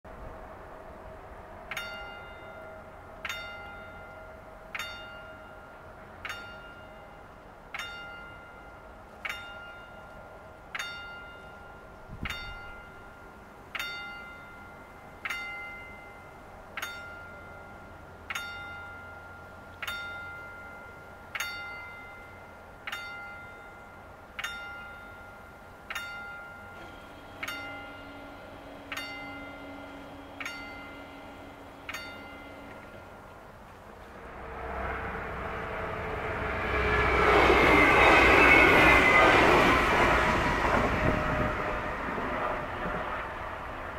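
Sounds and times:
electric warning bell ringing: 1.7 - 42.0
barrier drive humming: 26.6 - 43.9.

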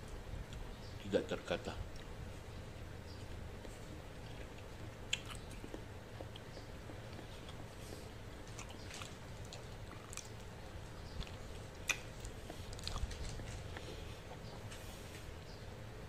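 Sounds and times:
person chewing: 3.1 - 15.2
sharp wet clicks: 8.5 - 13.2.

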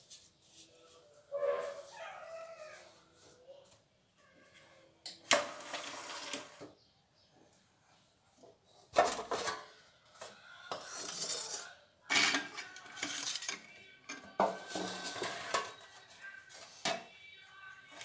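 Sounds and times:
metal kitchenware clattering: 10.8 - 15.9.

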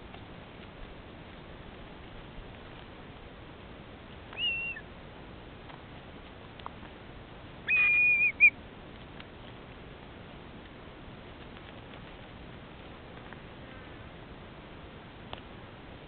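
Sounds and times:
kite whistling call: 4.4 - 4.9, 7.7 - 8.6.

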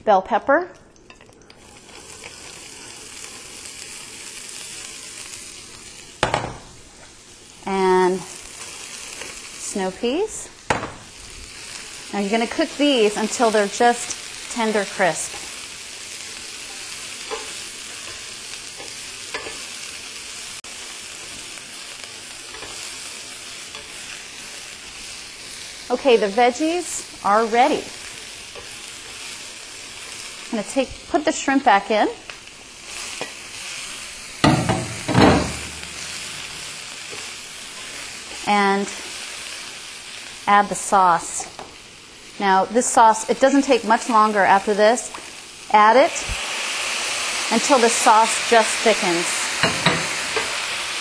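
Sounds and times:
pepper sizzling in hot oil: 1.0 - 51.0
metal tongs clicking on pan: 16.7 - 18.2, 18.8 - 19.6, 22.5 - 22.8.

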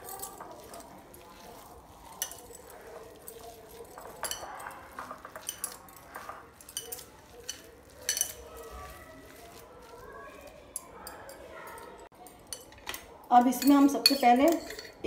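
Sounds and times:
dough squishing by hand: 0.0 - 11.7.

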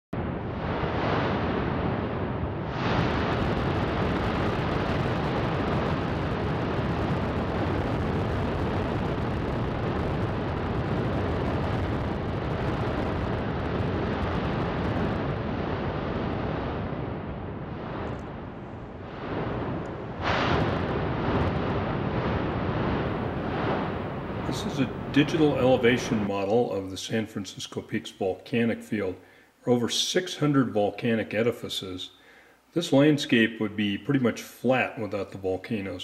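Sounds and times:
loud volcanic blast: 0.1 - 27.4
volcanic rumbling: 0.1 - 29.4.

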